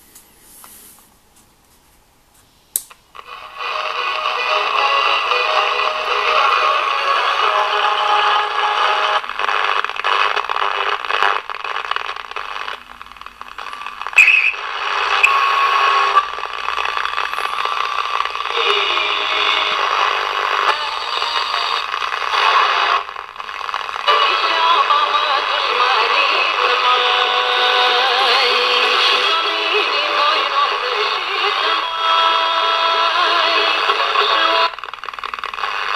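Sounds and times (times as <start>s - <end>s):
music with singing on radio: 3.2s - 35.9s
radio stations being tuned: 3.2s - 35.9s
radio tuning whistle: 12.8s - 24.2s.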